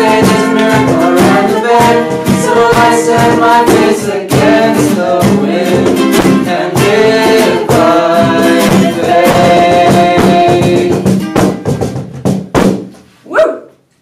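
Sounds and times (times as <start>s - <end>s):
people singing worship song: 0.0s - 11.2s
strummed acoustic guitar: 0.0s - 13.0s.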